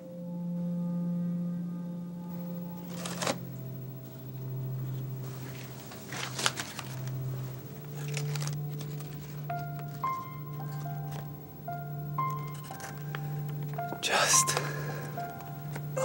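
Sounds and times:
low droning tone: 0.0 - 13.9
paper crinkling: 2.8 - 3.5, 4.8 - 11.4, 12.2 - 16.0.

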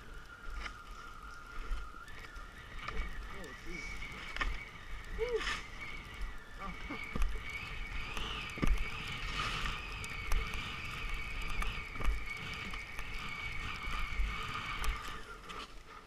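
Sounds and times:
skis sliding on snow: 0.0 - 16.0
wind on microphone: 0.0 - 16.0
skis thumping over bumps: 6.6 - 16.0.

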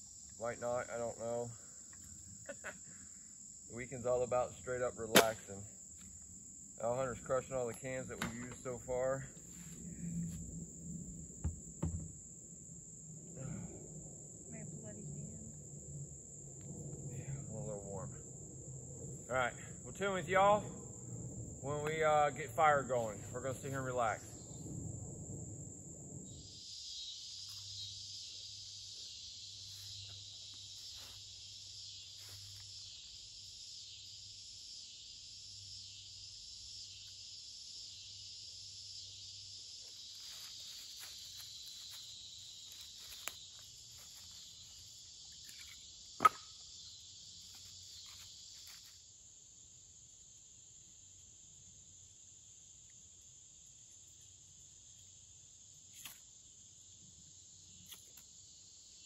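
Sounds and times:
insects chirring: 0.0 - 59.0
sharp snap: 5.1 - 5.5.

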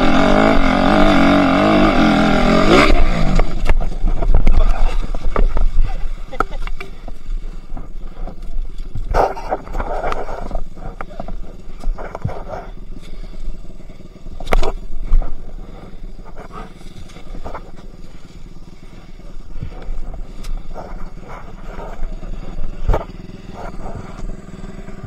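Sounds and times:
dirt bike engine rumbling: 0.0 - 25.0.

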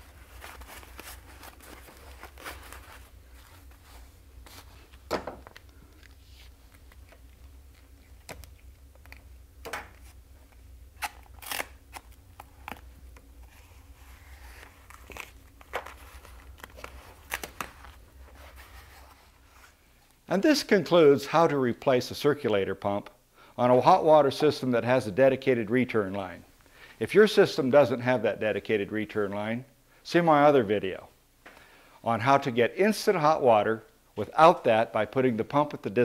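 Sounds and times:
foam crinkling and rustling: 0.0 - 8.6
steady low hum: 0.0 - 27.1
tape tearing: 11.0 - 18.6.

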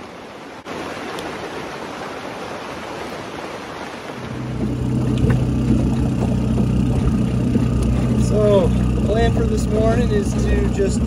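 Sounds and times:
steady rain falling: 0.0 - 10.7
outboard motor running: 4.2 - 11.0.

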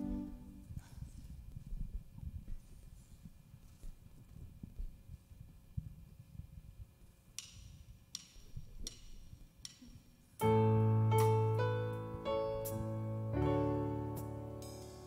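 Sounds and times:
keyboard piano chords: 0.0 - 0.7, 10.4 - 15.0.

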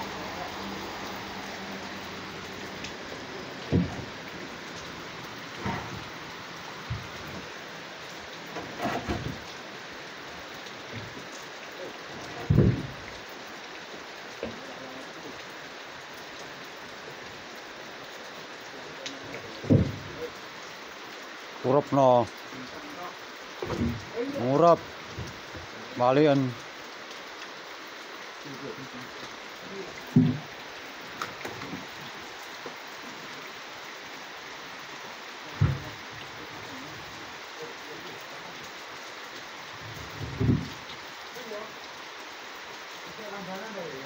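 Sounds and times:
rain falling: 0.0 - 44.0
steady hiss: 0.0 - 44.0
dull knock of logs: 3.6 - 4.2, 6.8 - 7.4, 8.5 - 9.5, 12.4 - 13.1, 19.6 - 20.2, 23.6 - 24.1, 30.1 - 30.5, 35.6 - 36.0, 40.0 - 40.8
heavy thud of logs: 3.6 - 4.3, 5.5 - 7.5, 8.5 - 9.5, 12.2 - 13.1, 19.6 - 20.3, 23.6 - 24.2, 30.1 - 30.5, 35.5 - 36.0, 39.9 - 40.9.

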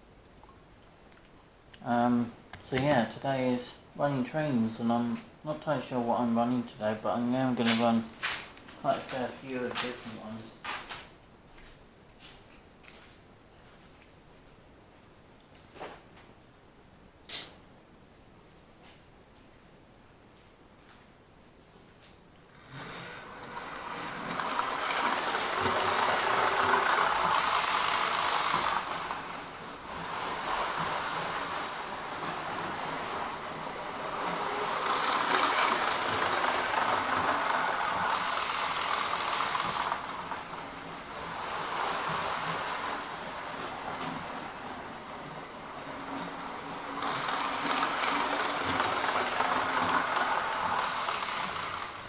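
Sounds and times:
model train motor whirring: 22.6 - 52.0.

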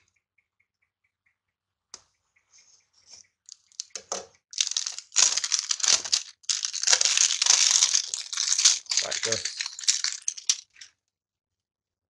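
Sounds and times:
plastic wrap crinkling and tearing: 4.6 - 10.9.

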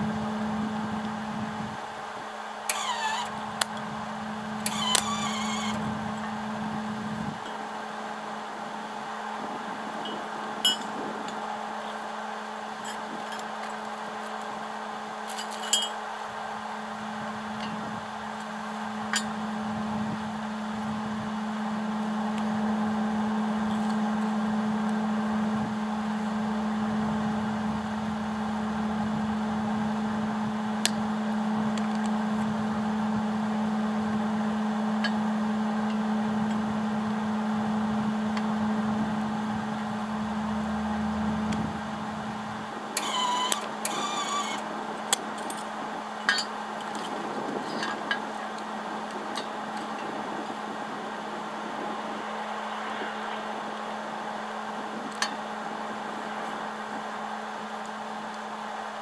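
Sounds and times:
machine hum: 0.0 - 51.6
metal clinks: 15.3 - 16.0.

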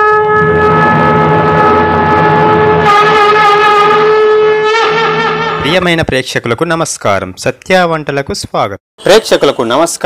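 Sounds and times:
conch shell blown in long note: 0.0 - 5.6.

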